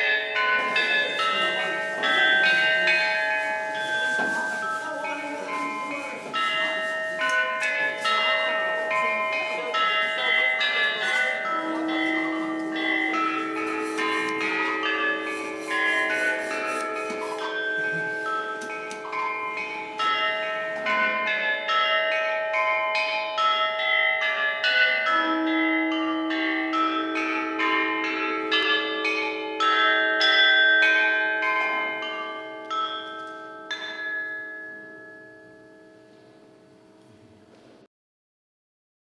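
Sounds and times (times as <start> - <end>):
tuned chimes ringing: 0.0 - 24.8, 26.3 - 36.8.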